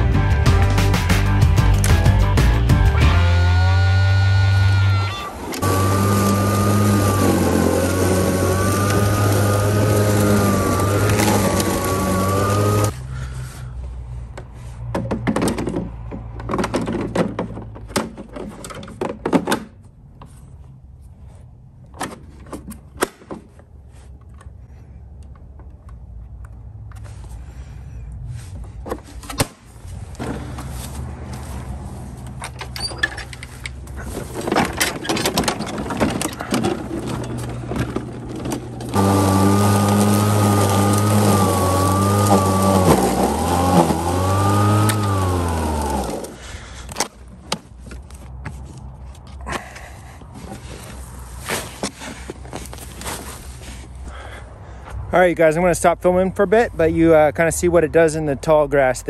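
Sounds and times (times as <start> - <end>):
lawn mower motor whining: 2.9 - 13.0, 30.1 - 48.2.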